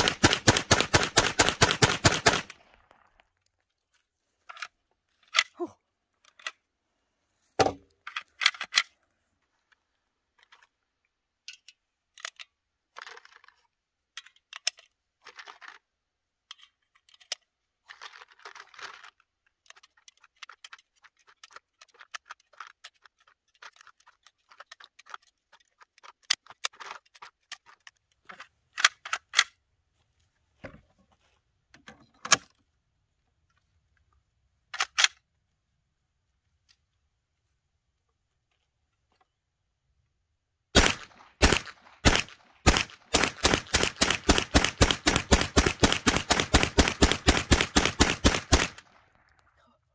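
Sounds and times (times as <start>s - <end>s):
sharp gun clacks: 0.0s - 2.6s, 40.8s - 49.0s
cartridges clicking into magazine: 34.7s - 35.2s, 40.8s - 49.3s.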